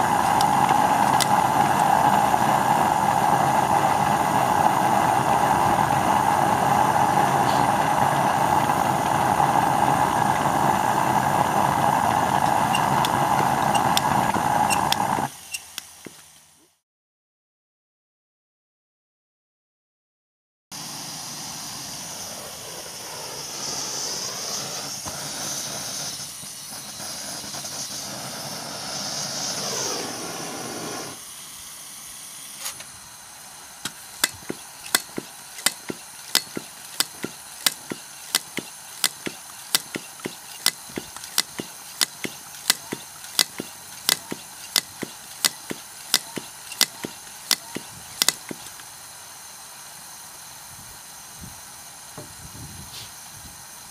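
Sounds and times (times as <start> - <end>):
blowtorch flame hissing: 0.0 - 16.6, 20.8 - 53.9
sharp evenly spaced clicks: 34.2 - 48.8.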